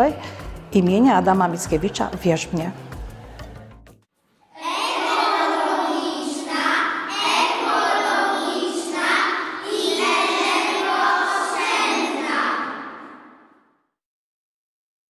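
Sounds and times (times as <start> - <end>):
children singing in unison: 4.5 - 13.5.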